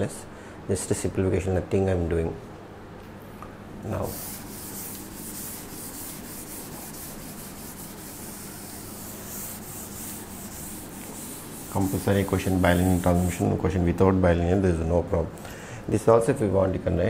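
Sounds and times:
duster scrubbing chalkboard: 0:03.9 - 0:13.6.

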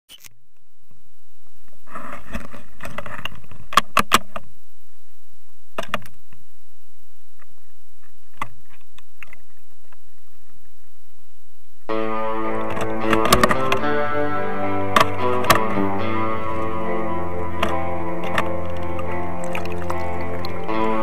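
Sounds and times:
water splashing and lapping: 0:17.6 - 0:21.0.

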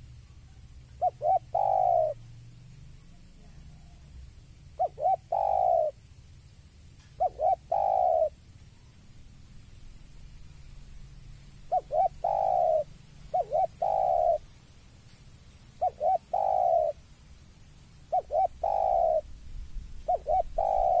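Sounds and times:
dove cooing: 0:00.0 - 0:02.3, 0:03.0 - 0:06.0, 0:07.2 - 0:08.4, 0:11.6 - 0:14.5, 0:15.8 - 0:17.0, 0:18.1 - 0:19.3, 0:20.0 - 0:21.0.

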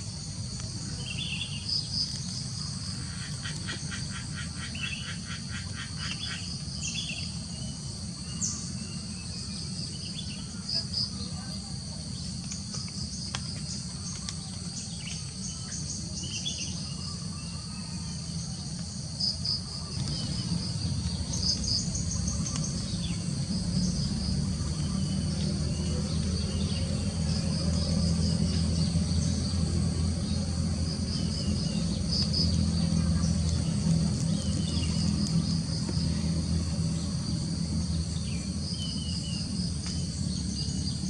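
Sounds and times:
insects chorus: 0:00.0 - 0:41.0
low droning hum: 0:00.0 - 0:41.0.

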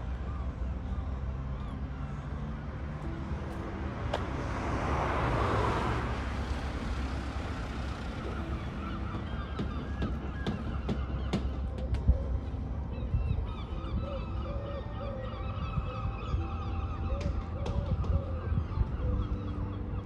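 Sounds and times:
low street rumble: 0:00.0 - 0:20.0
vehicle passing: 0:01.8 - 0:11.6
birds calling: 0:05.2 - 0:20.0.

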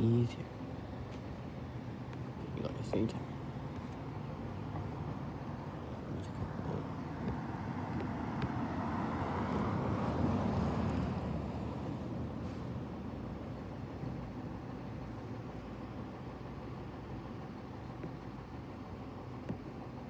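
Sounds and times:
car driving past: 0:06.2 - 0:12.8.

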